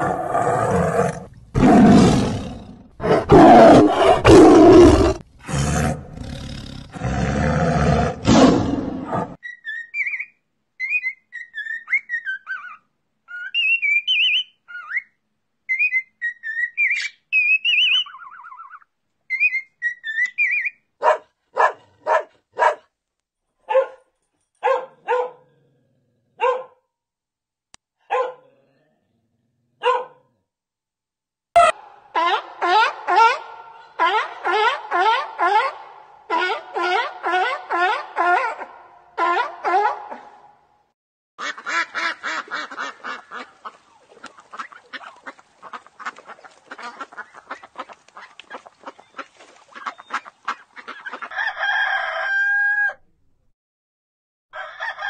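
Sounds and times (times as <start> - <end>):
tiger roaring: 0.0 - 9.4
dog barking: 21.0 - 22.9, 23.6 - 25.5, 26.4 - 26.8, 28.0 - 28.6, 29.8 - 30.3, 31.6 - 40.5.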